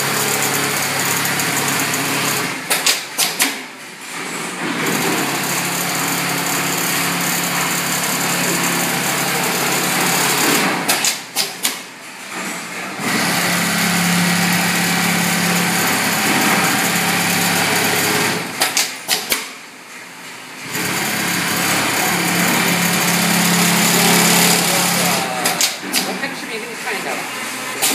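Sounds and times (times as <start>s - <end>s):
sewing machine stitching: 4.7s - 11.8s, 13.0s - 19.4s, 20.6s - 26.3s.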